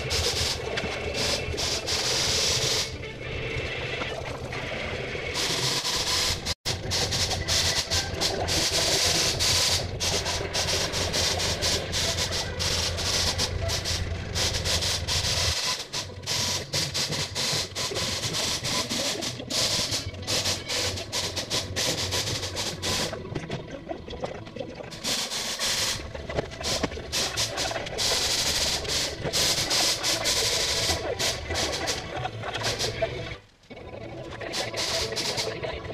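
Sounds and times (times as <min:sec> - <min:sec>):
air hissing: 0:00.0 - 0:03.0, 0:05.4 - 0:23.2, 0:25.0 - 0:26.0, 0:26.6 - 0:32.0, 0:34.6 - 0:35.6
paint sprayer turbine humming: 0:00.0 - 0:03.0, 0:05.4 - 0:23.1, 0:26.6 - 0:32.0, 0:34.5 - 0:35.6.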